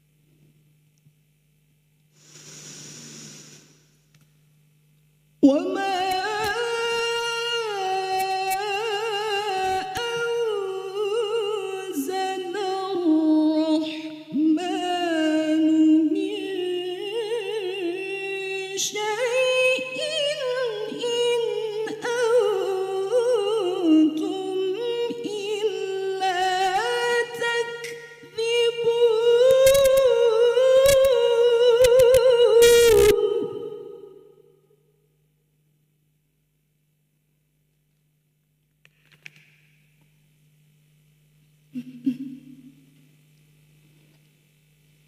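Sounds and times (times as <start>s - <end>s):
woman chanting melodically: 5.4s - 34.2s.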